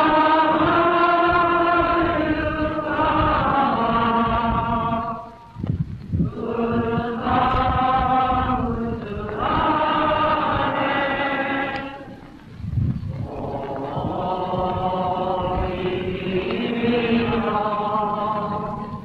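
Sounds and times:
men chanting in unison: 13.3s - 18.9s.

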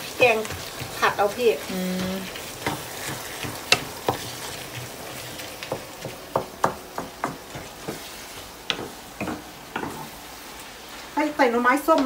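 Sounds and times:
meat sizzling in a frying pan: 0.0s - 12.0s
spatula knocking and scraping pan: 0.1s - 10.2s.

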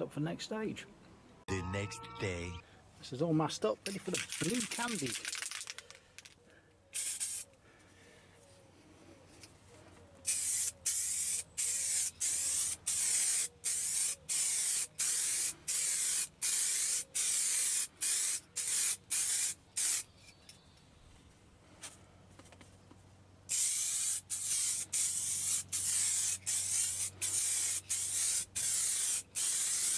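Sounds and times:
spray can hissing in short bursts: 7.0s - 7.5s, 10.3s - 20.0s, 23.5s - 29.9s.

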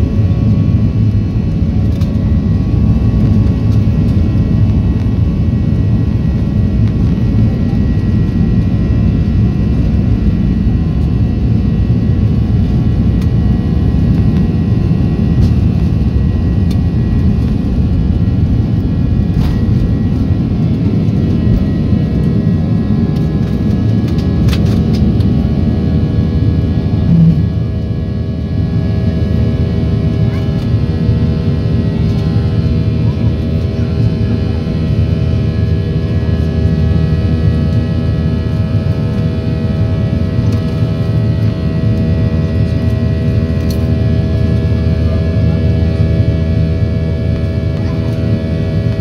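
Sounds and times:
wheels rumbling on runway: 0.0s - 25.5s, 26.8s - 28.0s
jet engines roaring: 0.0s - 49.0s.

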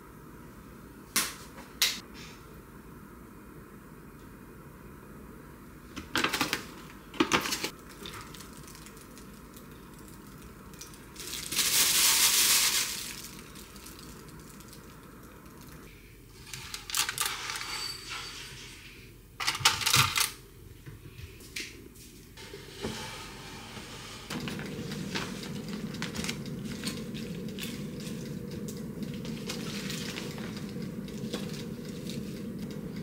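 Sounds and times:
plastic bag rustling: 7.5s - 15.8s, 24.3s - 33.0s.

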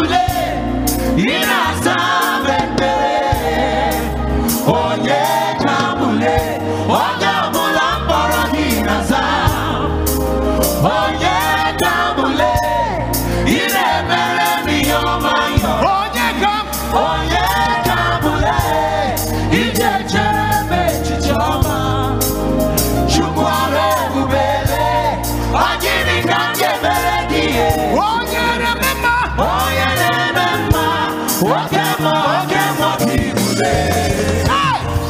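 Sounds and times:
gospel singers: 0.0s - 35.0s
steady bass line: 0.0s - 35.0s.

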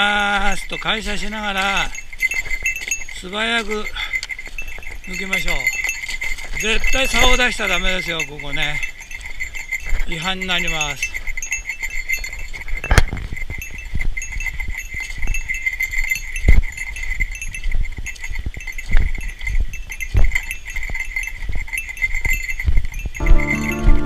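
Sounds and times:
small bell jingling: 0.0s - 24.0s
music: 23.2s - 24.0s.

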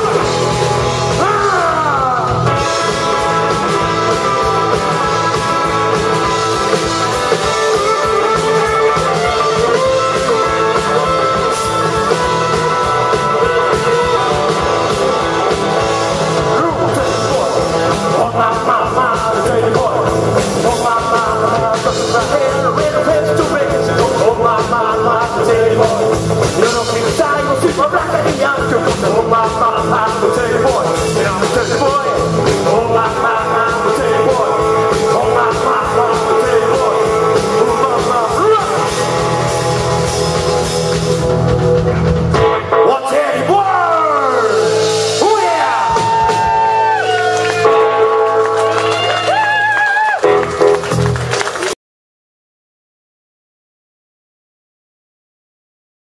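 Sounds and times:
bass guitar: 0.0s - 51.8s
drums: 0.0s - 51.8s
electric guitars: 0.0s - 51.8s
men singing into microphones: 16.5s - 39.2s.

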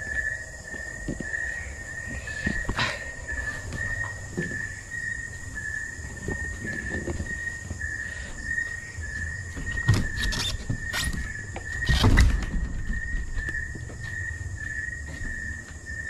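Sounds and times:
insects chirping: 0.0s - 16.0s.

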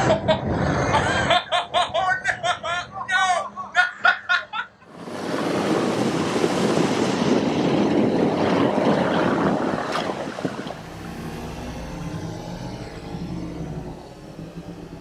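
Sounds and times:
vehicle engine running: 8.1s - 15.0s.

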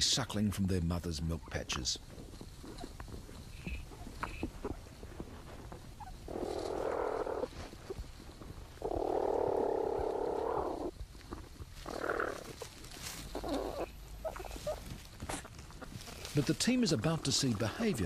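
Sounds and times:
platypus rasping sounds: 8.8s - 18.0s.

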